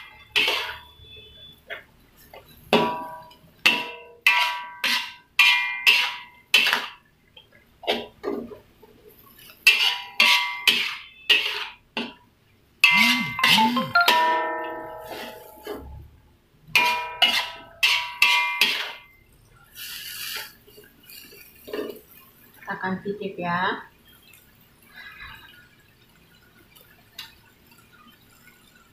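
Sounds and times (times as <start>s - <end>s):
metal spatula clanging on wok: 0.3s - 0.9s, 2.4s - 6.9s, 9.7s - 12.2s, 12.8s - 16.0s, 16.8s - 19.0s.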